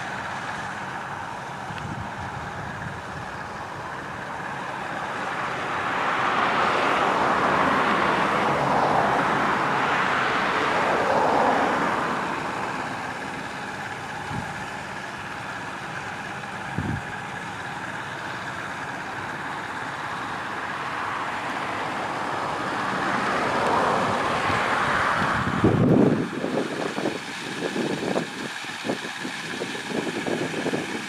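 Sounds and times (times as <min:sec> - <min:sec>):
combine harvester drone: 0:00.0 - 0:31.0.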